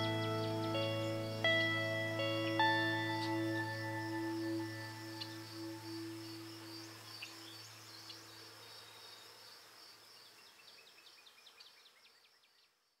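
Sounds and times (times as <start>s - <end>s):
ambient music: 0.0s - 8.1s
bird chirping: 0.0s - 9.6s
high insect trill: 0.0s - 11.0s.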